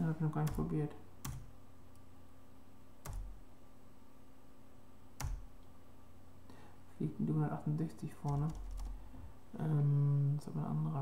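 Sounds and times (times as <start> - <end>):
faint steady hum: 0.0 - 11.0
keyboard keystrokes: 3.0 - 3.4, 5.2 - 5.4, 8.3 - 8.9.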